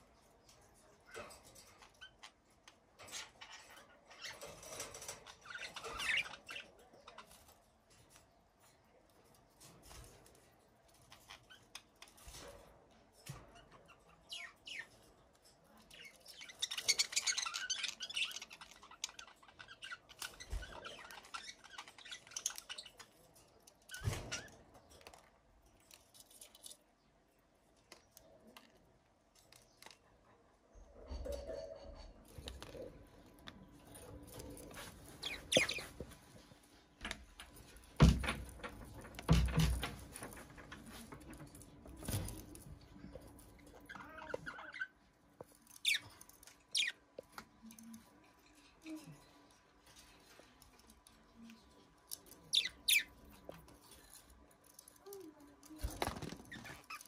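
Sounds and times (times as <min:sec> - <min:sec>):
budgerigars chirping: 0:46.7 - 0:47.0, 0:52.5 - 0:53.2.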